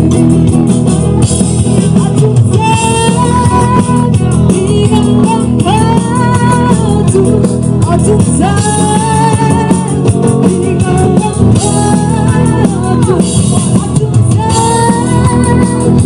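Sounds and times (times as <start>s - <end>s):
electric guitar: 0.0s - 16.0s
woman singing into a microphone: 0.0s - 16.0s.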